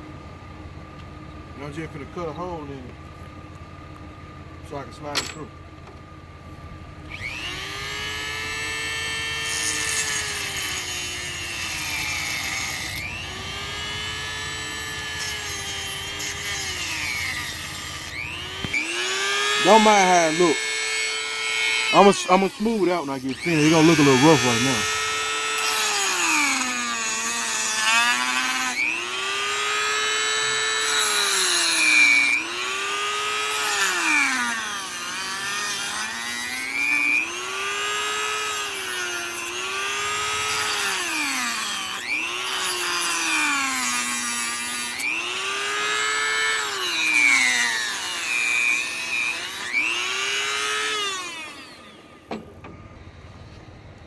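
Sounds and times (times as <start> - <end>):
rotary tool cutting plastic: 7.1 - 52.8.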